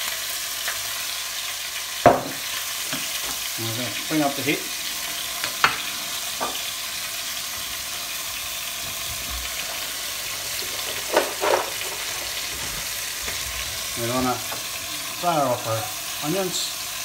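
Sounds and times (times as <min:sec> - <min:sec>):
meat sizzling in a frying pan: 0:00.0 - 0:17.0
fat crackles: 0:08.6 - 0:14.8.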